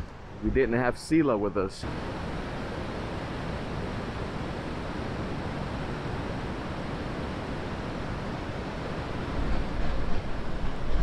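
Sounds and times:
waterfall rushing: 1.8s - 9.9s.

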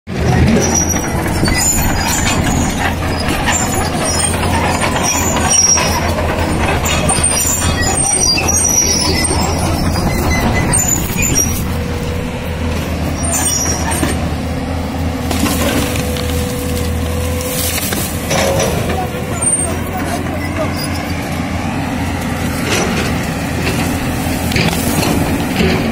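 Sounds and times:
excavator diesel engine running: 0.1s - 25.9s
high squeaks: 0.4s - 14.3s, 15.6s - 21.3s
steady whine: 0.6s - 15.2s.

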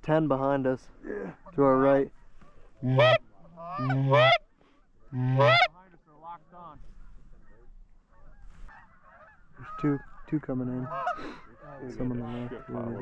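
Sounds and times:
distant goose honking: 1.3s - 13.0s
goose call two-note honks: 2.8s - 4.4s, 5.2s - 5.7s.

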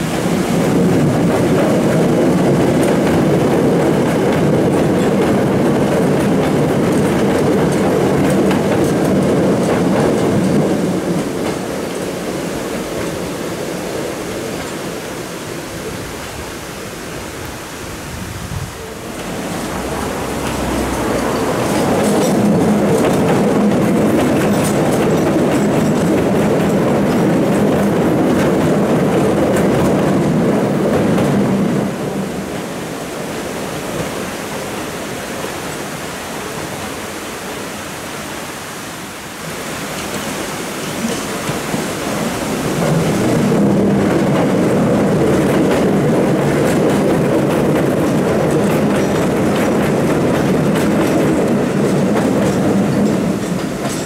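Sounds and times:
train wheels rumbling over bridge: 0.0s - 54.0s.

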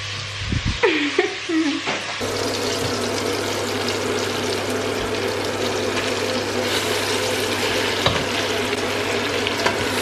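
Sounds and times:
vegetables sizzling in a pot: 0.0s - 10.0s.

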